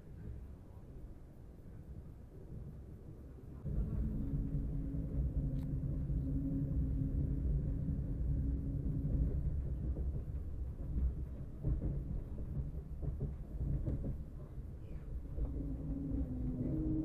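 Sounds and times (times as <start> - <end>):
train wheels rumbling on track: 0.0 - 17.0
humming tone: 3.7 - 10.0, 15.4 - 17.0.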